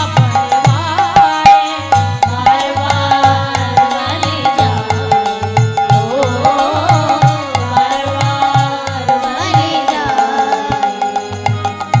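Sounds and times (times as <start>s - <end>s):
hand drum beating: 0.0s - 12.0s
wavering melody over held notes: 4.3s - 12.0s.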